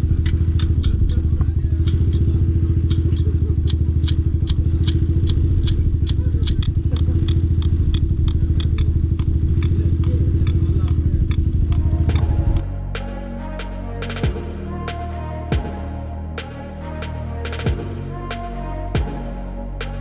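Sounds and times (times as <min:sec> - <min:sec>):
motorcycle engine idling: 0:00.0 - 0:12.8
turn signal ticking: 0:00.0 - 0:13.1.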